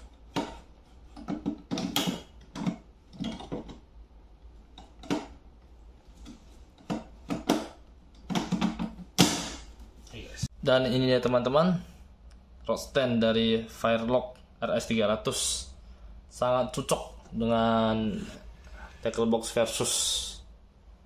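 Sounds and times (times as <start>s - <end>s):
hard plastic clicking and knocking: 0.3s - 3.8s, 4.7s - 5.4s, 6.2s - 9.6s.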